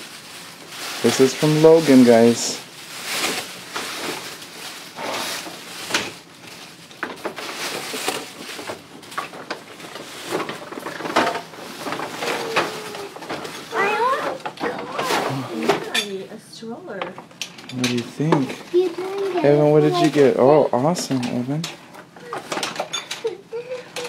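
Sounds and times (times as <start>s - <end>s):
paper rustling and crinkling: 0.0s - 16.0s.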